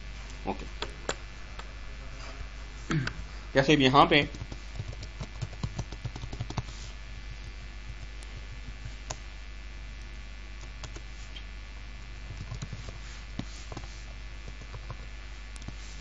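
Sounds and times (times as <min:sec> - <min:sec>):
low electrical hum: 0:00.0 - 0:16.0
keyboard typing: 0:04.2 - 0:06.7.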